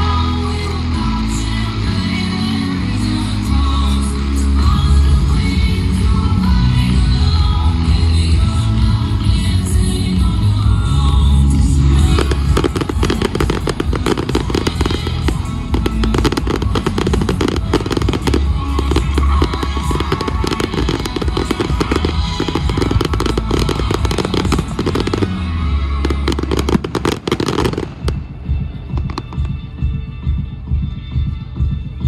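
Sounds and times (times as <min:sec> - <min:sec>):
music playing: 0:00.0 - 0:32.0
fireworks bangs and crackles: 0:10.2 - 0:30.6.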